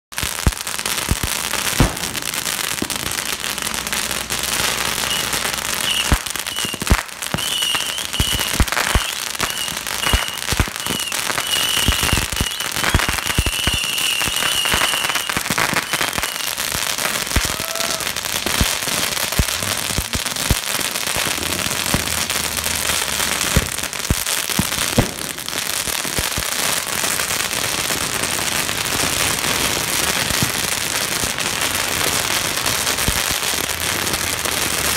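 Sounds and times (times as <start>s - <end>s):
firecracker bangs: 0.1s - 34.9s
firecrackers crackling: 0.1s - 34.9s
high wavering whistle: 5.0s - 16.5s.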